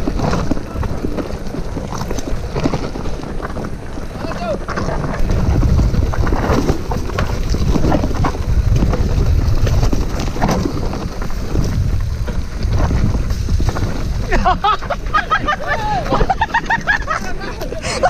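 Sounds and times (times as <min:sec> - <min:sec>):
bike rattling over bumps: 0:00.0 - 0:18.0
tyres crunching on gravel: 0:00.0 - 0:18.0
wind rumbling on microphone: 0:00.0 - 0:18.0.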